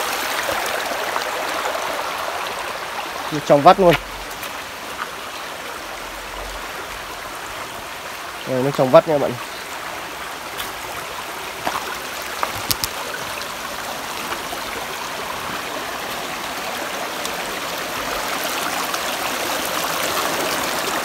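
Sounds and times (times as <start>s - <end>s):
stream babbling over rocks: 0.0s - 21.0s.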